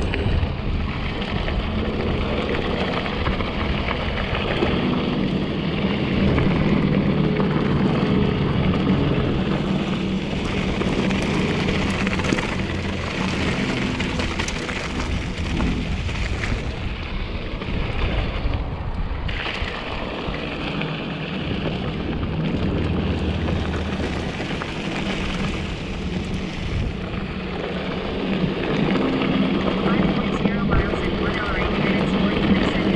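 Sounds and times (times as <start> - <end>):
bike rattling over bumps: 0.0 - 29.8
wind noise on microphone: 0.0 - 32.9
tyres rolling over dirt and rock: 10.0 - 18.6, 19.3 - 28.8.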